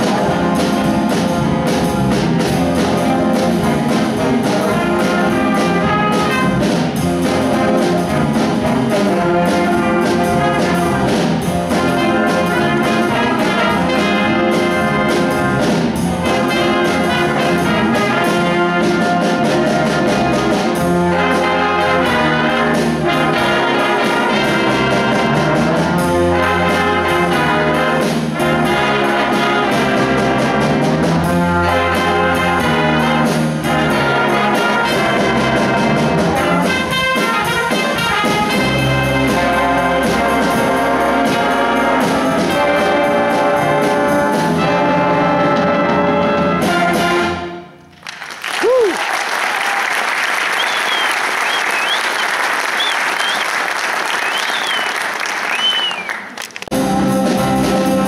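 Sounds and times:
instrumental ensemble playing: 0:00.0 - 0:58.0.

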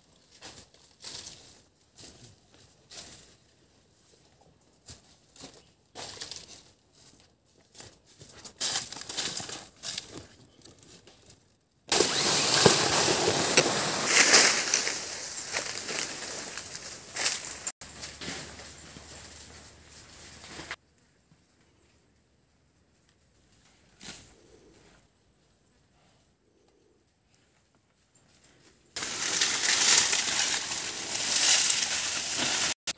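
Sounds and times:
camera carried through plants: 0:00.0 - 0:32.9
dry leaves rustling: 0:04.8 - 0:10.3, 0:11.9 - 0:20.8, 0:29.0 - 0:32.9.

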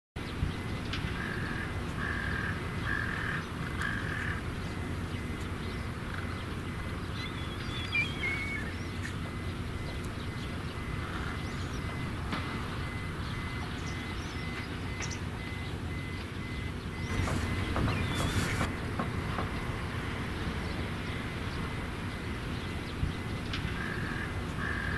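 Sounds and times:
crows cawing: 0:01.1 - 0:04.5, 0:23.7 - 0:24.9
kite whistled call: 0:07.2 - 0:08.8, 0:17.0 - 0:18.7.

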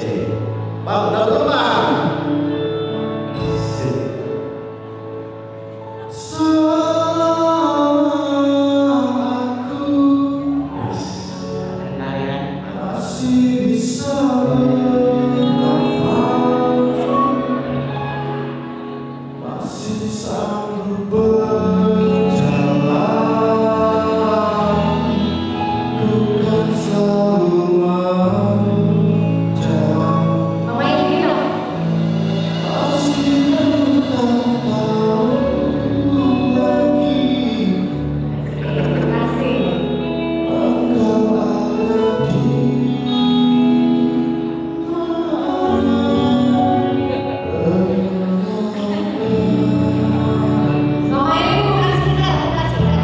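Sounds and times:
music with held bass notes: 0:00.0 - 0:53.0
men singing into microphones: 0:12.1 - 0:18.4, 0:19.4 - 0:51.7.

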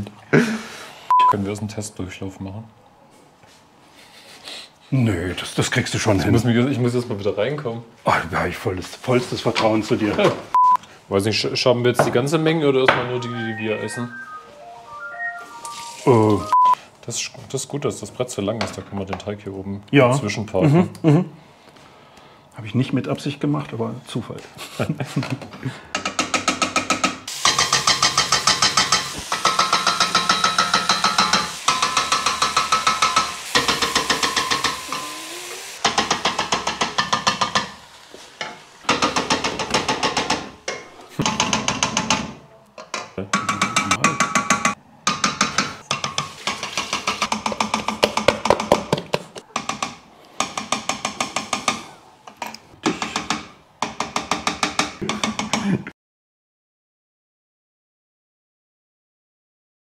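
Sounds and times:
wooden spoon tapping metal pot: 0:42.8 - 0:49.0.

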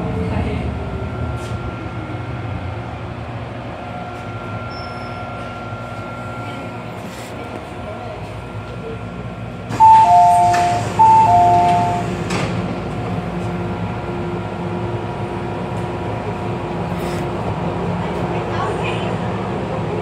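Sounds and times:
train humming: 0:00.0 - 0:20.0
low on-off beeping: 0:04.2 - 0:06.4, 0:09.7 - 0:12.2
doors sliding open: 0:09.7 - 0:12.8
two-note door chime: 0:09.8 - 0:12.0.

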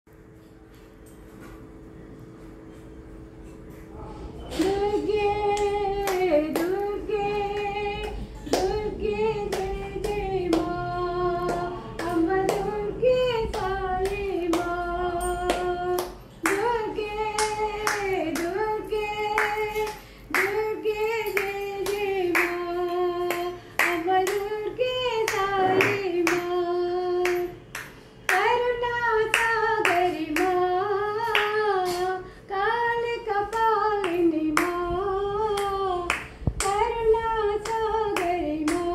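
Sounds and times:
elderly woman singing: 0:04.5 - 0:27.7, 0:28.3 - 0:38.9
hand-clapping: 0:05.5 - 0:08.8, 0:09.4 - 0:26.6, 0:27.2 - 0:28.6, 0:29.2 - 0:30.6, 0:31.2 - 0:32.1, 0:33.5 - 0:34.8, 0:35.5 - 0:38.9.

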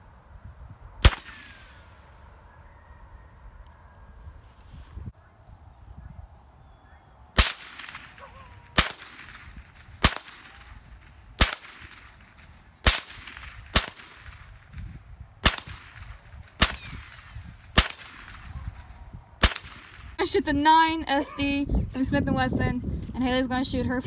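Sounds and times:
rifle shots: 0:01.0 - 0:02.0, 0:07.4 - 0:20.2.

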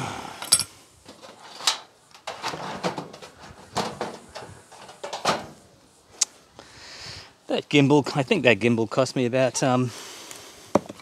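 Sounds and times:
metal panel clattering and scraping: 0:01.0 - 0:05.6.

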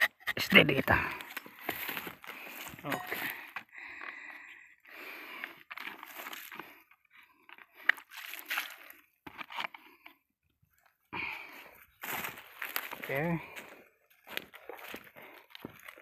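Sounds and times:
footsteps crunching through dry leaves: 0:05.8 - 0:06.6, 0:08.0 - 0:09.0, 0:12.0 - 0:16.0.

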